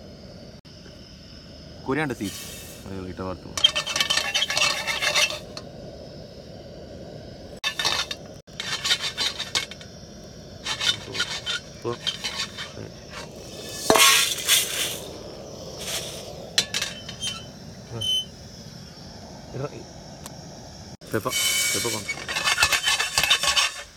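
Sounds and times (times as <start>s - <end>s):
seeds rattling in metal frying pan: 3.6s - 5.6s, 7.6s - 9.9s, 10.6s - 15.0s, 15.8s - 17.5s, 21.2s - 23.9s.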